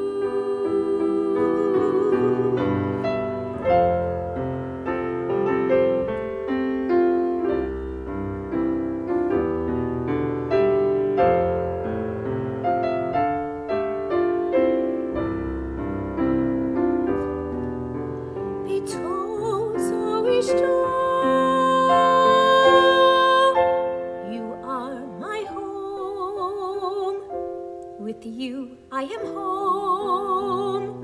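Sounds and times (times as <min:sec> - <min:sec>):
woman singing: 0:00.0 - 0:03.9, 0:18.6 - 0:31.0
grand piano playing: 0:00.0 - 0:31.0.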